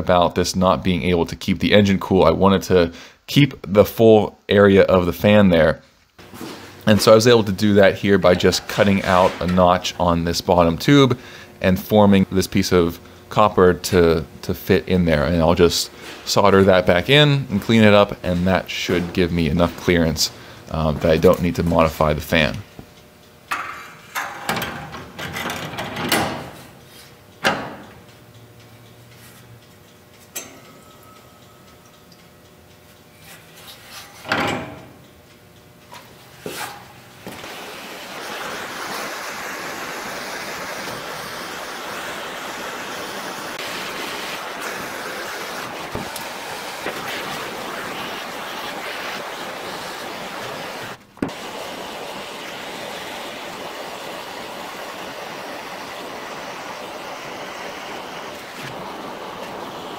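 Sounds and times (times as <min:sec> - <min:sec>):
gas torch hissing: 0:36.4 - 0:59.9.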